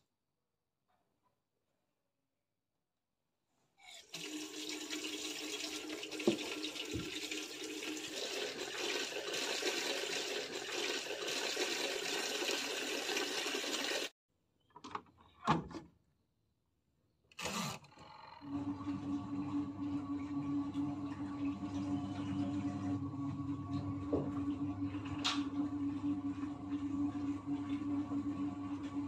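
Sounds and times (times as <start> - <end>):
water rushing into washer tub: 3.8 - 14.1, 18.5 - 29.0.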